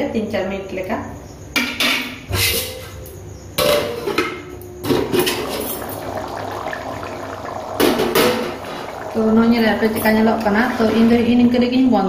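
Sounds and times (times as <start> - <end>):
metal lid clanking and scraping: 1.6 - 3.0
gravy bubbling: 5.1 - 11.7.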